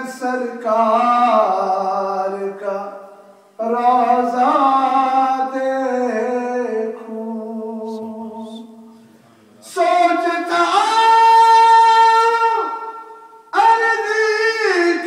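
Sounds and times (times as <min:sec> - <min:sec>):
man singing unaccompanied: 0:00.0 - 0:08.9, 0:09.6 - 0:15.0.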